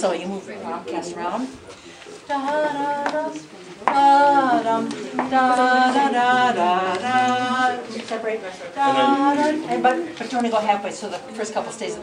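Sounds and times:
woman singing without words: 2.2 - 10.1.

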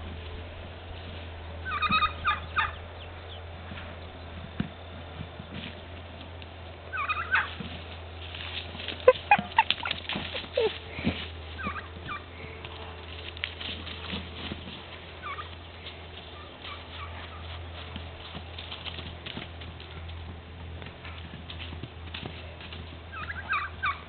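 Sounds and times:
high animal chirping calls: 1.6 - 3.4, 6.9 - 7.5.

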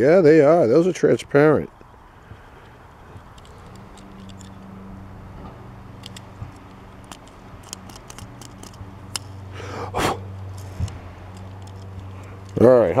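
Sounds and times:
steady low hum: 0.0 - 13.0
toy car clicks and taps: 6.0 - 9.3, 11.3 - 12.6.

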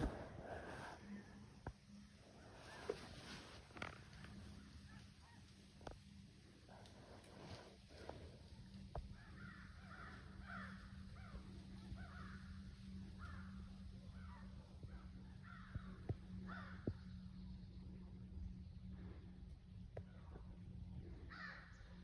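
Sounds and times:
crows cawing: 9.0 - 17.1, 21.1 - 22.0.

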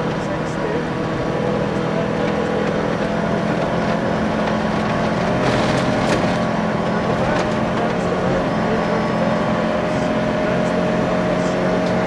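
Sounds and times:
car engine running under load: 0.0 - 12.0
tyres rushing on gravel: 1.9 - 8.8.

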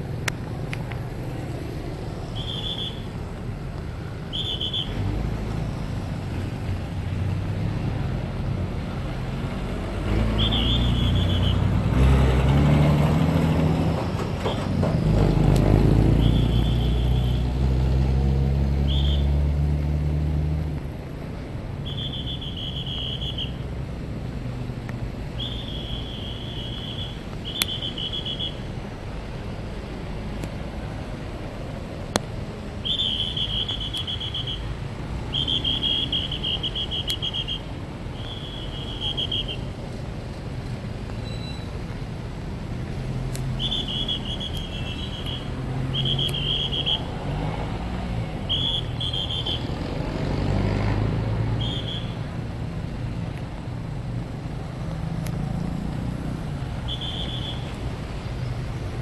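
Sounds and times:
heavy vehicle engine: 0.0 - 59.0
road traffic: 0.0 - 59.0
whistle short high blasts: 2.2 - 3.1, 4.3 - 5.0, 10.4 - 11.7, 16.2 - 17.4, 18.9 - 19.3, 21.8 - 23.6, 25.4 - 28.6, 32.8 - 34.7, 35.3 - 39.6, 43.6 - 47.1, 48.5 - 49.7, 51.6 - 52.2, 56.8 - 57.7.

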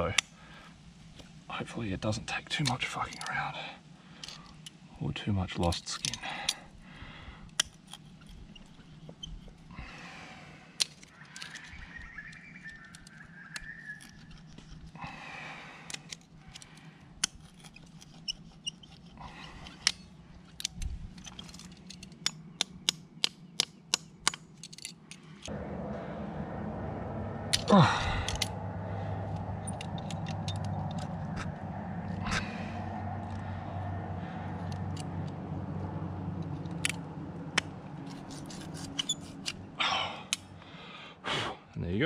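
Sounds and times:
metal sleeve scraping on rock: 17.2 - 20.2, 38.0 - 39.7.

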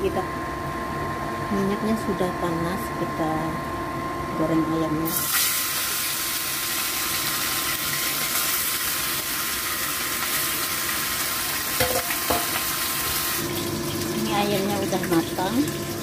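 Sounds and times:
chicken sizzling in hot oil: 5.1 - 16.0.

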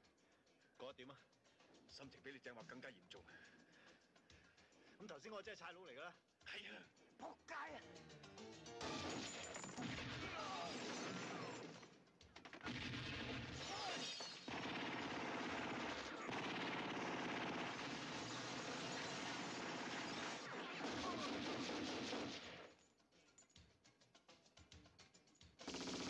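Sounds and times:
automatic rifle fire: 8.8 - 11.7, 12.6 - 22.7, 25.6 - 26.0
glass bottles shattering: 8.8 - 11.8, 13.6 - 14.5.

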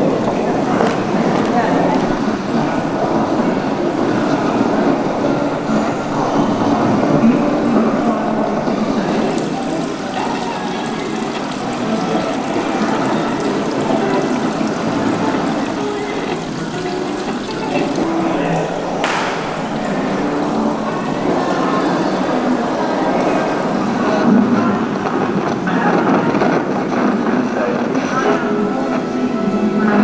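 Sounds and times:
water splashing into metal tub: 8.7 - 24.0.

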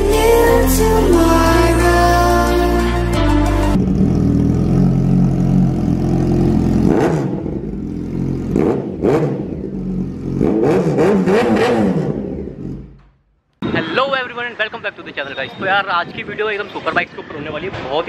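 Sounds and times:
motorcycle idling and revving: 3.7 - 13.4.

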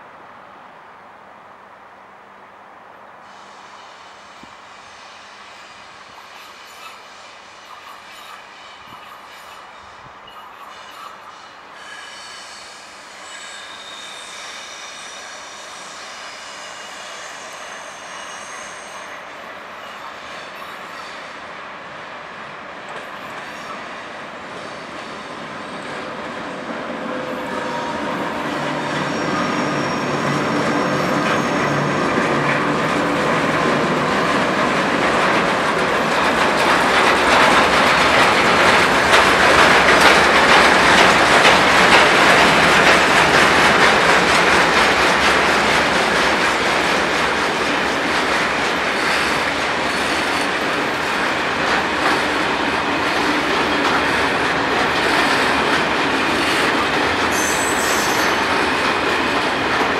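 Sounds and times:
high wheel squeal: 6.2 - 21.4, 27.1 - 34.3, 56.4 - 58.8
train wheels rumbling and clattering: 22.9 - 59.9.

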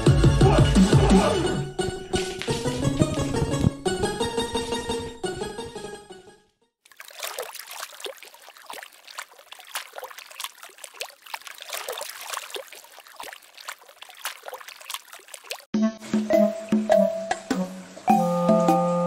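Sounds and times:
dog paddling and splashing water: 6.8 - 15.7.

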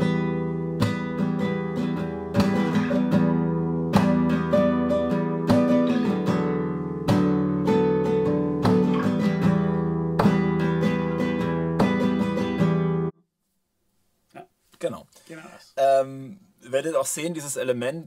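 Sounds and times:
acoustic guitar strumming: 0.0 - 13.1.

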